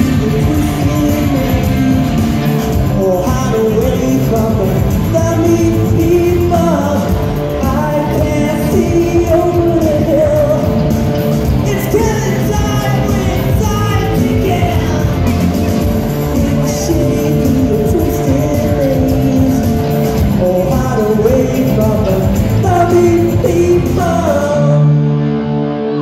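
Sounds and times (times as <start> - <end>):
lead singer: 0.0 - 26.0
live rock band playing: 0.0 - 26.0.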